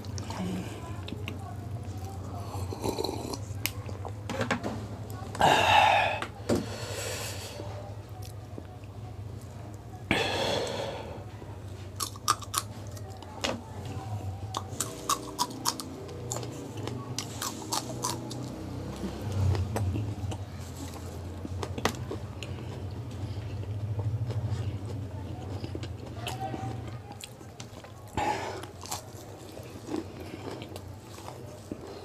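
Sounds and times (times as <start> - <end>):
crunching and chewing: 0.0 - 4.3, 11.8 - 32.0
breathy bursts: 10.1 - 11.2.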